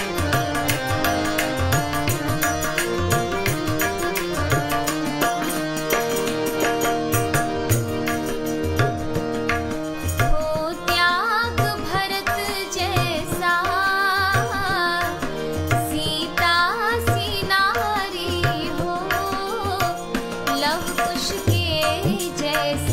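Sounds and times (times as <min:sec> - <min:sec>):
held instrument notes: 0:00.0 - 0:22.8
tabla strokes: 0:00.0 - 0:22.9
woman singing: 0:10.2 - 0:22.9.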